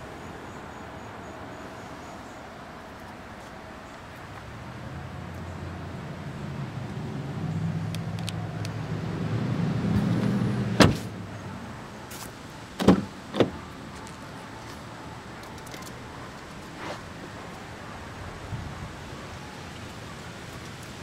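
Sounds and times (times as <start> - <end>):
car door slamming: 10.7 - 11.1, 12.8 - 13.6.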